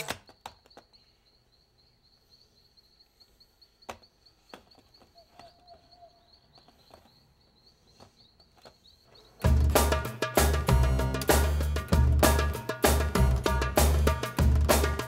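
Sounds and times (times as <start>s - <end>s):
loud drum-led music: 9.4s - 15.0s.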